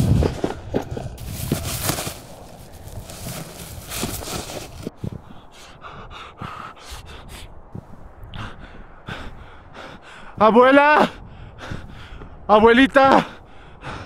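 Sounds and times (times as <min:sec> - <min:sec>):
footsteps through dry grass: 0:00.0 - 0:04.9
man panting hard: 0:04.0 - 0:10.4, 0:11.0 - 0:12.5, 0:13.1 - 0:14.0.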